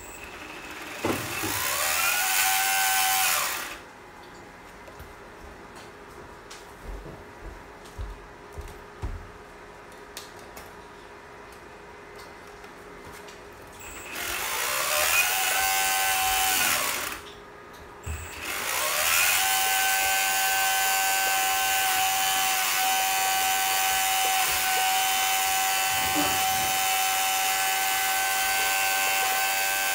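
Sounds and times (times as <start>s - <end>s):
water pump motor whine: 18.0s - 29.9s.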